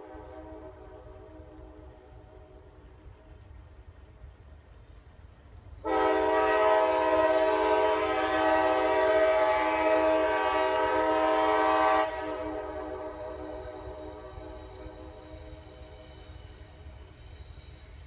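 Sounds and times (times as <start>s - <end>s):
train horn blast: 0.0s - 2.7s, 5.8s - 16.0s
faint horn tones: 0.0s - 3.4s, 5.8s - 16.5s.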